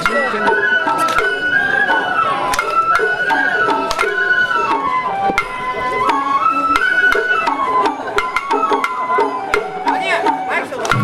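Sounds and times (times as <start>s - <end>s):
bamboo flute melody: 0.0s - 11.0s.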